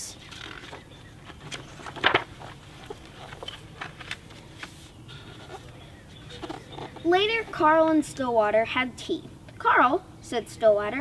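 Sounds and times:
book page turning: 0:00.2 - 0:07.0.

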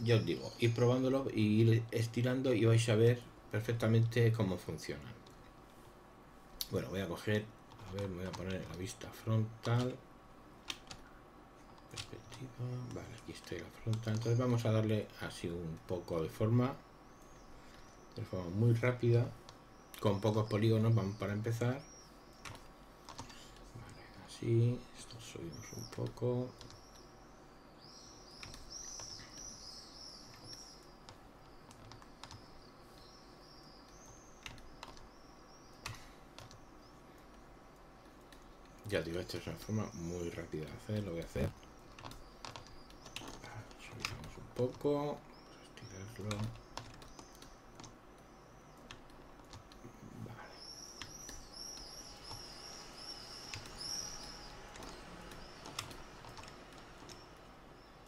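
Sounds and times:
small bird chirping: 0:10.7 - 0:58.0
computer mouse clicks: 0:22.4 - 0:24.0, 0:25.8 - 0:27.1, 0:30.3 - 0:33.1, 0:33.9 - 0:35.1, 0:35.7 - 0:37.4, 0:41.0 - 0:44.8, 0:51.0 - 0:57.4
high chirps: 0:49.8 - 0:58.0.

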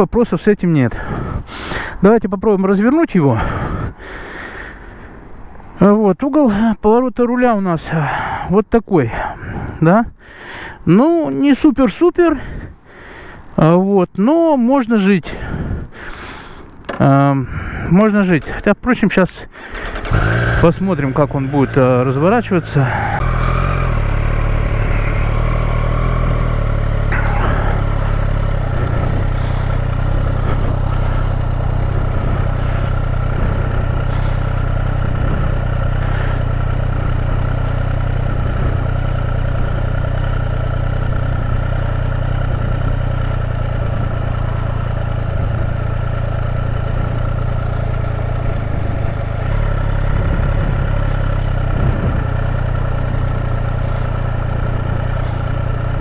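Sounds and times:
motorcycle engine running at low revs: 0:19.6 - 0:56.0.

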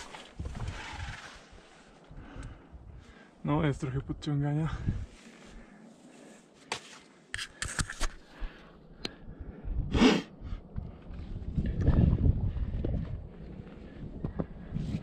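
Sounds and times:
climbing gear scraping on rock: 0:00.0 - 0:01.9.

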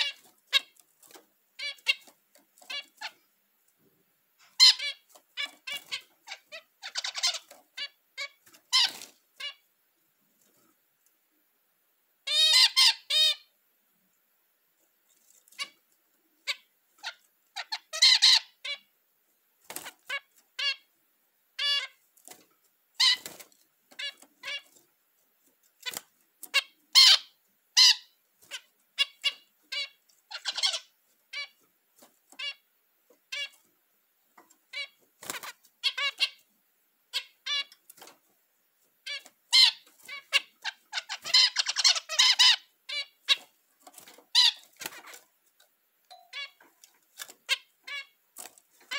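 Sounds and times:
finch song: 0:00.0 - 0:48.9
finches calling: 0:04.5 - 0:09.6, 0:25.8 - 0:31.6, 0:39.1 - 0:43.5.

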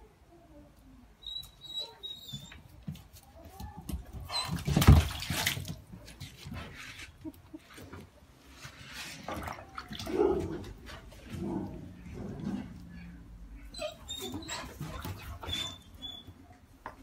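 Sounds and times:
water splashing in a pool: 0:04.6 - 0:06.1, 0:08.8 - 0:11.4.

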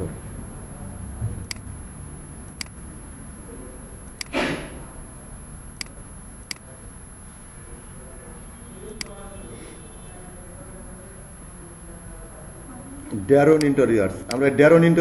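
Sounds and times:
computer mouse clicking: 0:02.5 - 0:02.8, 0:04.1 - 0:04.4, 0:05.8 - 0:06.7.

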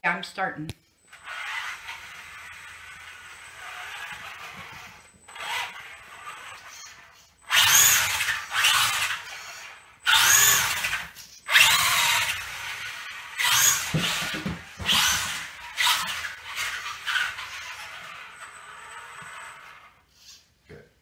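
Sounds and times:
rc car motor whining: 0:01.1 - 0:20.5.

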